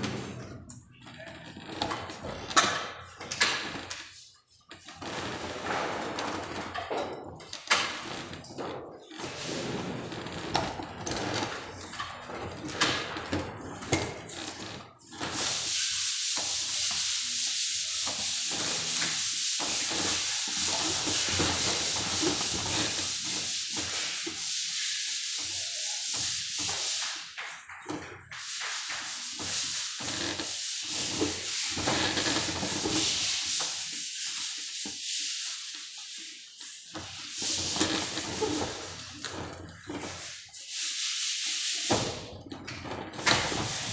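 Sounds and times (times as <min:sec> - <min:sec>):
hand rubbing on plaster ceiling: 0:00.0 - 0:06.8, 0:07.6 - 0:43.9
steady hiss: 0:15.1 - 0:42.4, 0:43.2 - 0:43.9.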